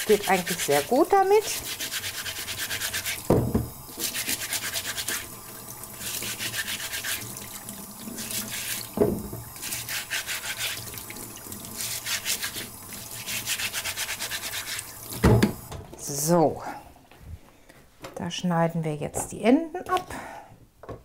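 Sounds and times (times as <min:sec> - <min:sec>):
brush scrubbing carrots: 0:00.0 - 0:03.3, 0:03.9 - 0:15.1
tap water running: 0:00.0 - 0:16.0.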